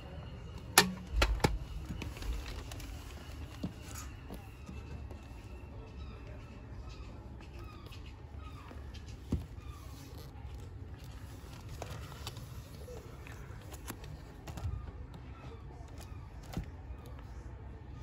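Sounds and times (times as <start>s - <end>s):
plastic cases clicking and knocking: 0.7s - 2.9s.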